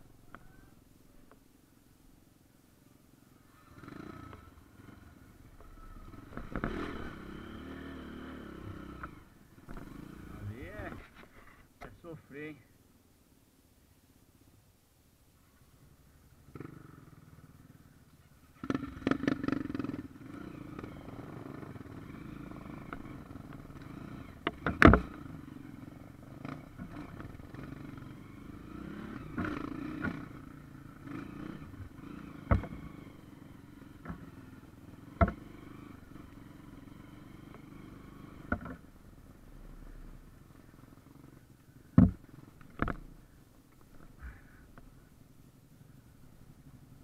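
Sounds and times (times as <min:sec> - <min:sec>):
dirt bike engine running: 0:03.4 - 0:11.0, 0:16.4 - 0:47.0
bike knocking over roots: 0:24.4 - 0:25.2, 0:31.8 - 0:32.9, 0:35.1 - 0:35.5, 0:41.9 - 0:43.2.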